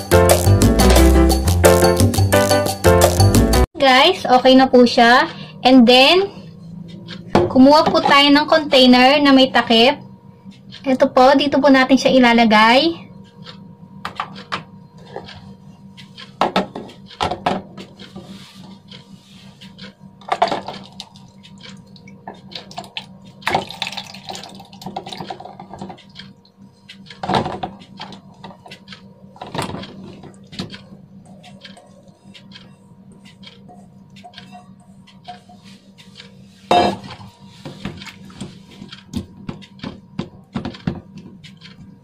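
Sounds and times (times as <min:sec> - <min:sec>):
steady low hum: 0:03.6 - 0:42.0
knocks and scrapes against bowl: 0:29.6 - 0:41.8.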